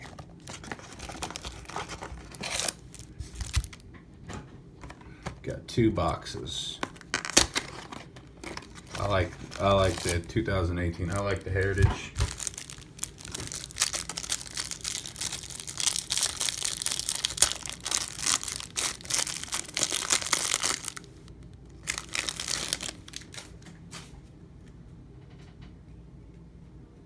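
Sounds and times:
plastic wrap crinkling and tearing: 0.0 - 3.9, 6.8 - 23.6.

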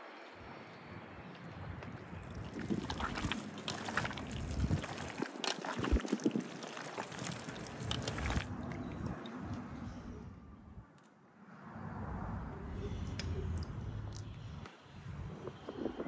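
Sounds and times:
wet squelching and sloshing: 2.2 - 9.8.

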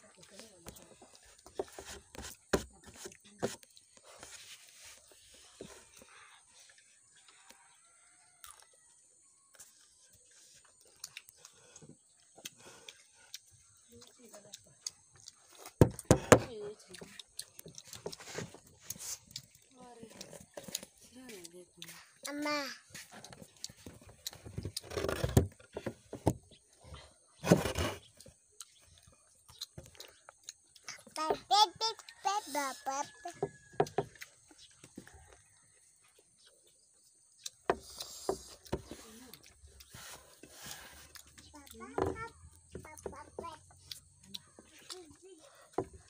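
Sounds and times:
mouth clicks and chewing: 8.4 - 8.8, 9.4 - 25.9, 28.0 - 31.2, 31.8 - 32.4, 33.0 - 35.6, 36.4 - 46.0.

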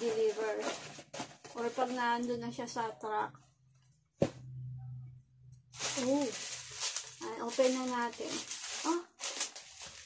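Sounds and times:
bubble wrap crinkling: 0.0 - 2.3, 5.7 - 10.0.

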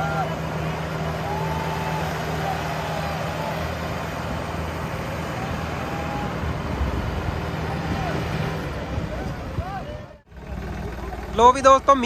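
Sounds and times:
tractor diesel engines droning: 0.0 - 12.0.

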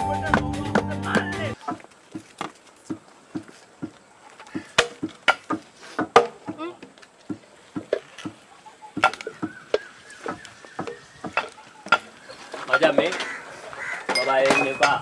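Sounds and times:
soft rhythmic knocks: 2.1 - 13.3.

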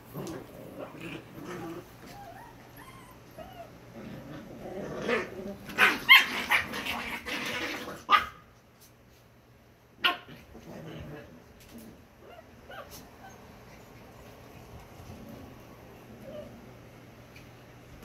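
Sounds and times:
puppies whimpering: 2.0 - 3.8
puppies yipping and barking: 2.0 - 3.9.

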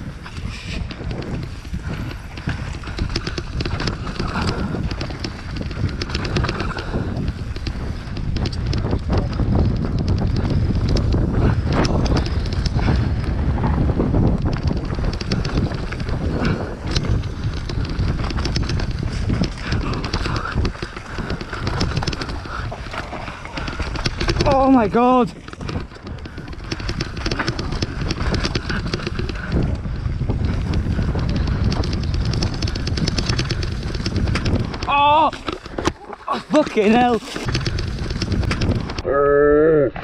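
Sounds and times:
bike rattling and knocking: 0.0 - 39.1
bike tyres on dirt: 0.0 - 39.1.

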